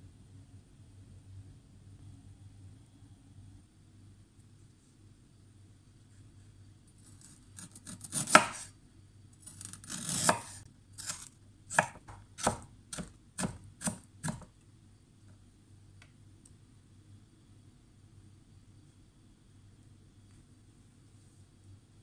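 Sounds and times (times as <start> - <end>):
knife chopping on cutting board: 7.6 - 8.7, 9.6 - 14.5.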